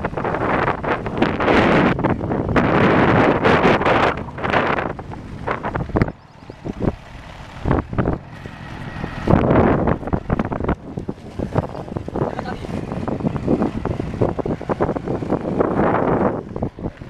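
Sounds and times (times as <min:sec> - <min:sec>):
motorcycle riding noise: 0:00.0 - 0:17.0
wind buffeting microphone: 0:00.0 - 0:17.0.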